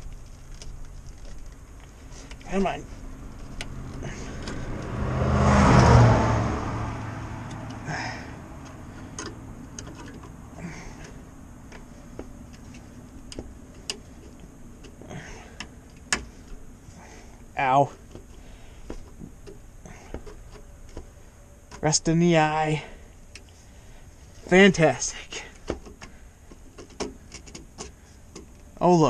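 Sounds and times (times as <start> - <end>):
vehicle passing: 1.7 - 22.2.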